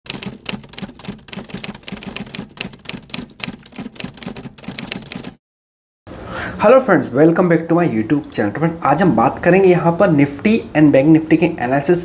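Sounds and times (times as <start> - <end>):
keyboard typing clicks: 0.1 - 5.4.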